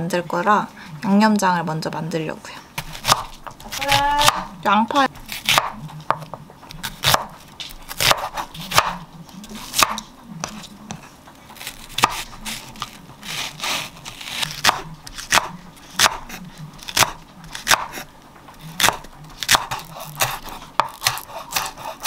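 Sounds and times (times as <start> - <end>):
knife slicing leek on board: 2.8 - 4.5, 5.2 - 9.0, 9.6 - 11.0, 11.6 - 18.1, 18.8 - 22.0.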